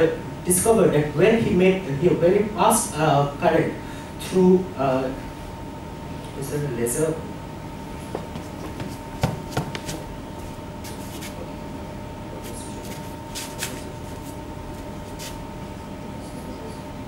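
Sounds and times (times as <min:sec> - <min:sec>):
sound system hum: 0:00.0 - 0:17.0.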